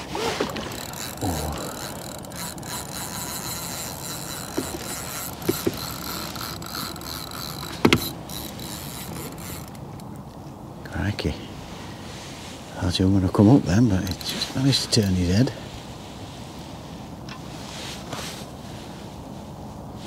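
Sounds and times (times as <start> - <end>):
fishing reel gear whirr: 0.0 - 10.3, 13.9 - 15.1
sharp reel clicks: 0.4 - 10.1.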